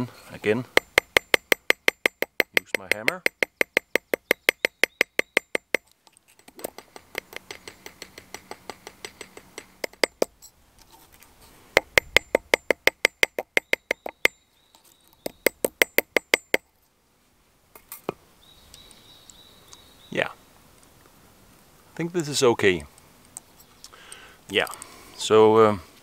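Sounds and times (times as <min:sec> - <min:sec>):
hammer tapping copper: 0:00.6 - 0:10.4, 0:11.8 - 0:14.4, 0:15.2 - 0:16.6.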